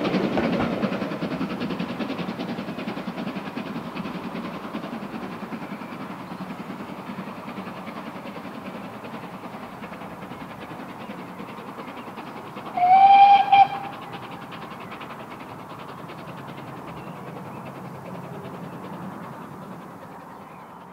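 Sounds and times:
distant train rumble: 0:00.0 - 0:20.9
steam locomotive whistle: 0:12.7 - 0:14.1.

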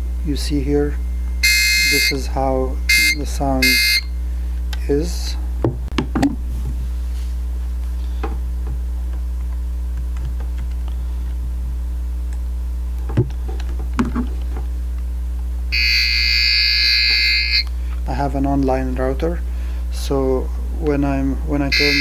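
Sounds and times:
shrill buzzing tone: 0:00.0 - 0:04.4, 0:15.7 - 0:17.8, 0:21.6 - 0:22.0
low electrical hum: 0:00.0 - 0:22.0.

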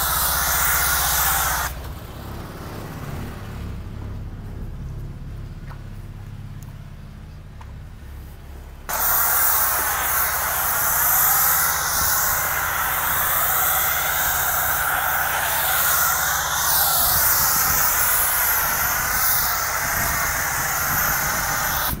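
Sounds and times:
foam cannon spraying hiss: 0:00.0 - 0:01.9, 0:08.9 - 0:22.0
low motor hum: 0:00.0 - 0:09.0.

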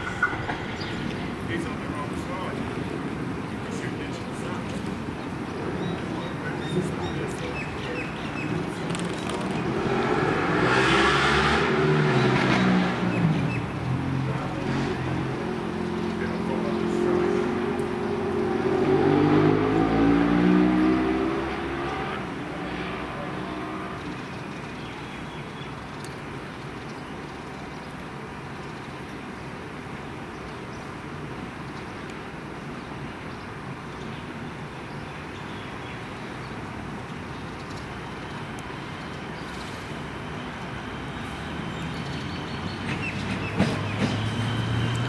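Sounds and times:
electric train humming: 0:00.0 - 0:03.6
electric train rumbling: 0:00.0 - 0:10.0, 0:38.2 - 0:45.0
car passing on road: 0:00.0 - 0:24.4, 0:37.9 - 0:45.0.

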